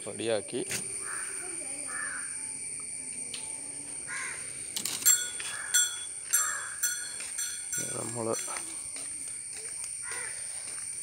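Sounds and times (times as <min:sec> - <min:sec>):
crows cawing: 0:01.0 - 0:02.4, 0:04.1 - 0:04.6, 0:05.4 - 0:07.1, 0:10.0 - 0:10.6.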